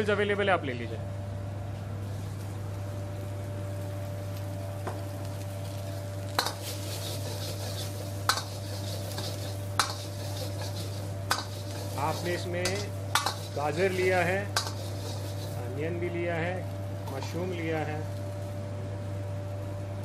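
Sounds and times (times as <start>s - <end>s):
steady low hum: 0.0s - 20.0s
ladle scraping and clanking wok: 6.3s - 15.7s.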